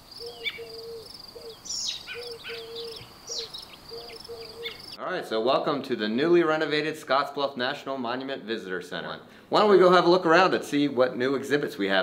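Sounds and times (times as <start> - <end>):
birds chirping: 0.0 - 5.0
insect high-pitched trill: 0.0 - 5.0.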